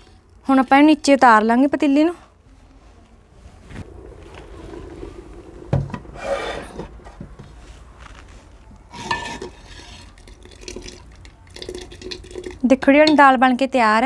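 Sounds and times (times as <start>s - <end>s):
metal scraping: 3.3s - 10.2s.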